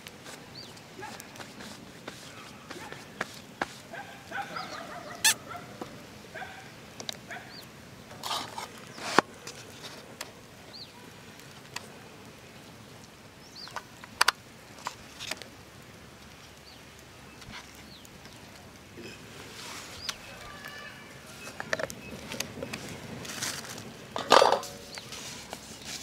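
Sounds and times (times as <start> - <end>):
bird chirping: 2.7 - 5.6, 13.4 - 13.8.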